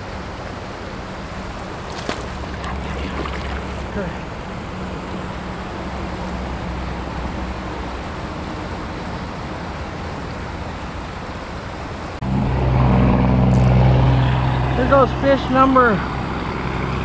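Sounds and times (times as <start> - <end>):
river rushing over rocks: 0.1 - 6.1
steady low hum: 0.8 - 5.8.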